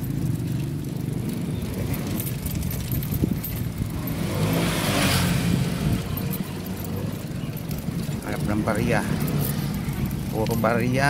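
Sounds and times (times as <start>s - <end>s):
car engine running: 0.0s - 11.0s
road noise: 0.0s - 11.0s.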